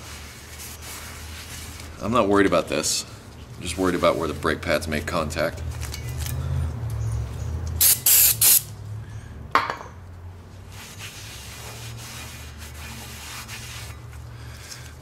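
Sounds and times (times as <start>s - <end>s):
aerosol spray hissing: 7.8s - 8.7s.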